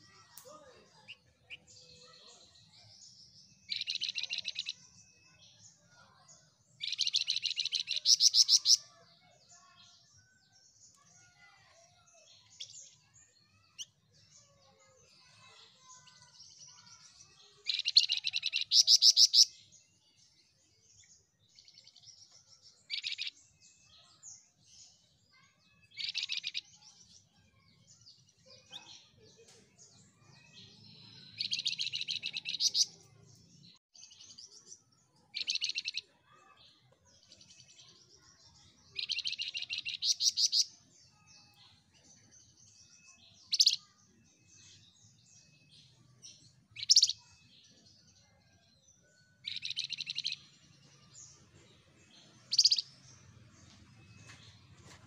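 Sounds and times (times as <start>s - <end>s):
soft bird chirps: 0.0s - 55.0s
songbird trilling: 6.8s - 8.8s, 46.8s - 47.3s, 52.4s - 52.9s.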